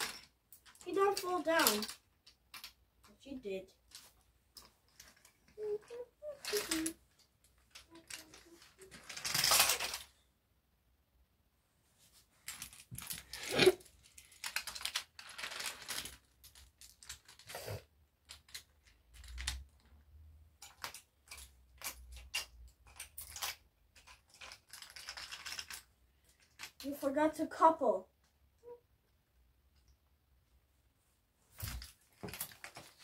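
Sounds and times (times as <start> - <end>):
wooden toy trains clicking: 0.0 - 2.8, 3.9 - 10.2, 14.0 - 17.6, 18.2 - 20.0, 20.6 - 27.1.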